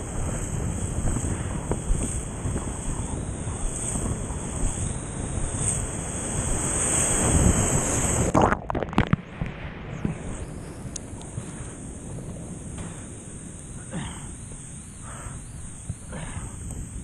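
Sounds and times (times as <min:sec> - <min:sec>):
hiss of foam: 0:00.0 - 0:08.3, 0:10.0 - 0:17.0
wind and surf rushing: 0:00.0 - 0:17.0
underwater splashing and gurgling: 0:07.2 - 0:10.9.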